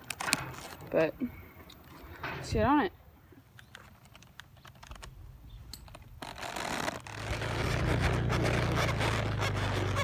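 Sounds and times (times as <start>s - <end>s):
leather saddle creaking and rubbing: 3.6s - 10.0s.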